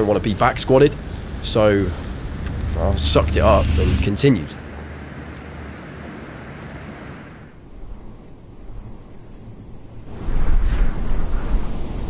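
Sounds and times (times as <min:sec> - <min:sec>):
wind gust on microphone: 0:00.4 - 0:08.2, 0:10.0 - 0:12.0
insect chirring trill: 0:07.2 - 0:12.0.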